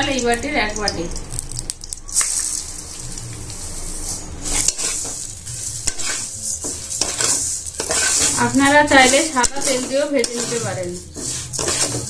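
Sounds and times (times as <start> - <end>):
lentils sizzling in hot ghee: 0.0 - 12.0
metal spatula scraping a pan: 3.7 - 12.0.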